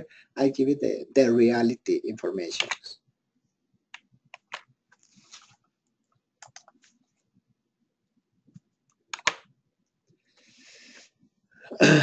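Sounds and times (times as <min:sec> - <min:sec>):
keyboard and mouse clicks: 0:02.6 - 0:02.8, 0:03.9 - 0:05.5, 0:06.4 - 0:06.9, 0:08.5 - 0:09.5.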